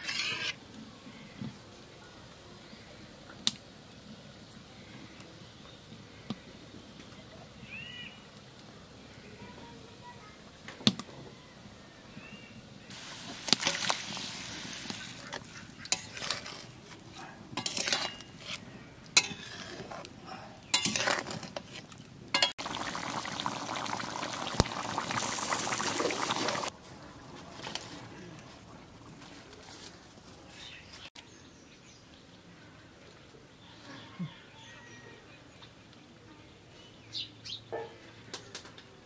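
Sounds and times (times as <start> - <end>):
metal spatula scraping pan: 0.0 - 0.6, 14.9 - 17.0, 17.6 - 18.6, 19.2 - 20.1, 20.7 - 22.5
faint bird chirps: 7.6 - 8.3
curry sizzling and bubbling: 12.9 - 31.1.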